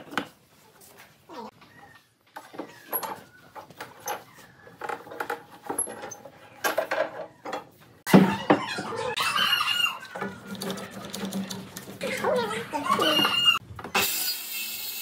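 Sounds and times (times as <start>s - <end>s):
knocking and scraping: 2.3s - 9.1s.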